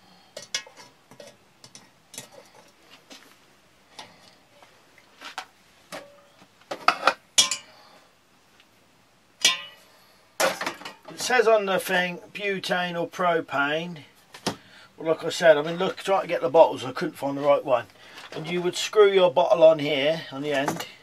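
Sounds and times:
metal cookware clinking: 0.4 - 2.6, 5.9 - 7.8, 9.4 - 11.1.

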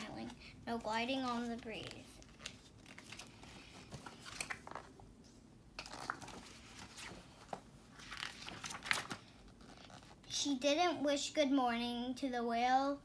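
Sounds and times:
book pages rustling: 0.0 - 10.3.

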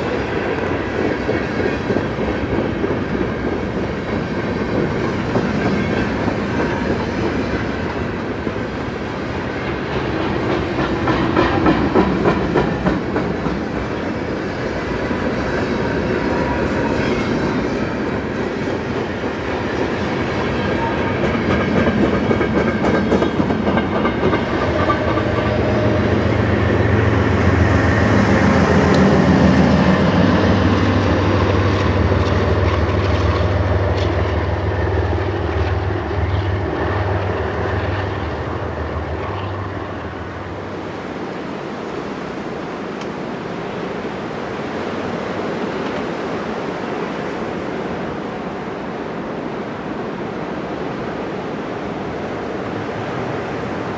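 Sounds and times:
train wheels clacking over rail joints: 0.0 - 8.8, 9.4 - 40.1.

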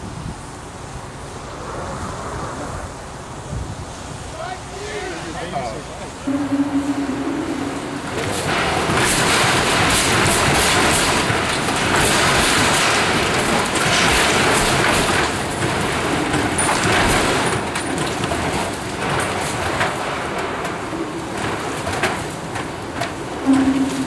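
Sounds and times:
steady rumble: 6.2 - 9.5.

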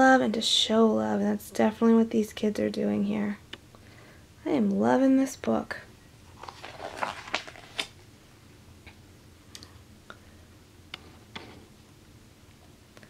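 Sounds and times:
paper page rustling: 6.4 - 8.0.

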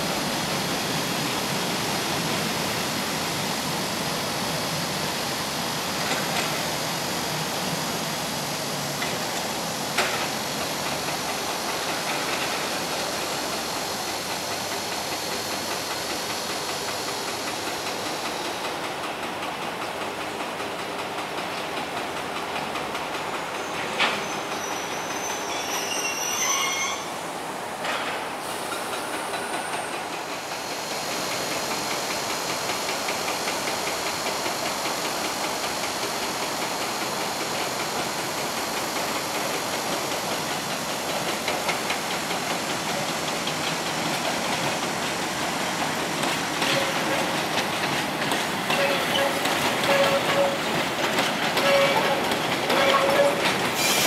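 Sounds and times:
train wheels clattering on track: 0.0 - 54.0
high wheel squeal: 23.6 - 27.2, 48.7 - 50.7, 51.6 - 54.0.

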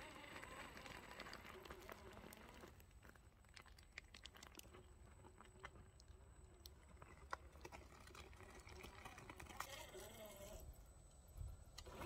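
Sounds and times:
toy car tyres crunching on rock: 0.0 - 5.9.

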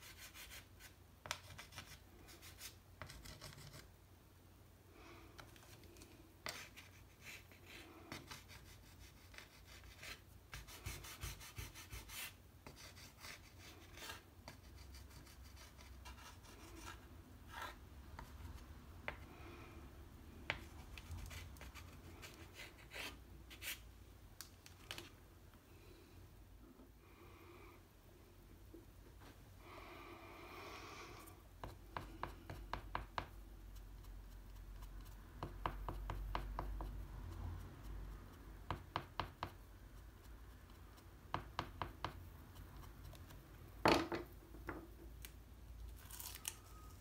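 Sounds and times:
pastel stick scratching on paper: 0.0 - 3.9, 6.4 - 19.2, 20.5 - 23.8, 31.6 - 43.4.

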